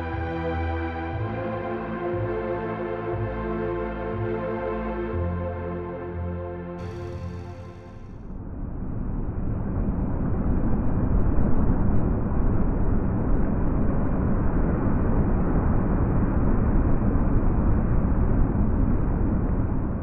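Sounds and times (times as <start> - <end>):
wind rumbling on microphone: 8.3 - 20.0.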